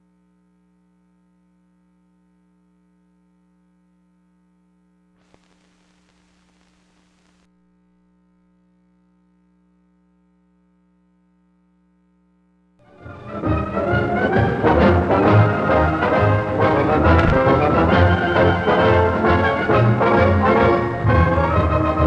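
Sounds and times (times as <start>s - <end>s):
faint electrical hum: 0.0s - 12.9s
single click: 17.2s - 17.4s.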